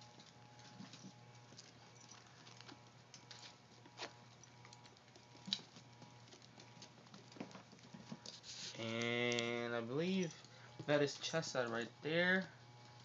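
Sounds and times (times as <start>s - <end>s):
puppy claws clicking on wood floor: 0.1s - 9.7s.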